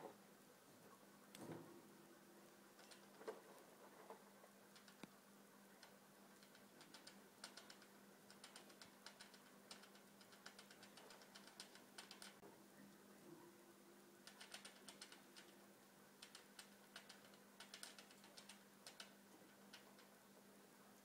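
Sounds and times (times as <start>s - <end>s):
rat clicking on wire cage: 2.8s - 3.4s, 4.7s - 5.1s, 5.8s - 12.4s, 14.2s - 15.6s, 16.2s - 20.2s.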